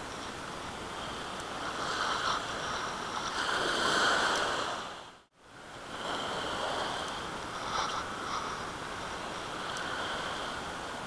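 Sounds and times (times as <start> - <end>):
small waves washing over rocks: 1.0 - 5.1.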